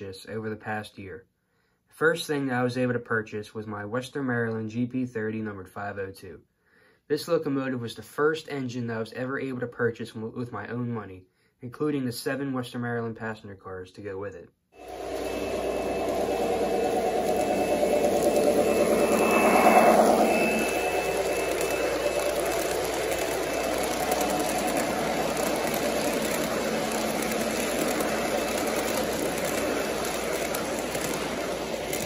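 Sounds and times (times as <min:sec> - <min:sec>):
model train whirring and rumbling: 0:14.8 - 0:32.0.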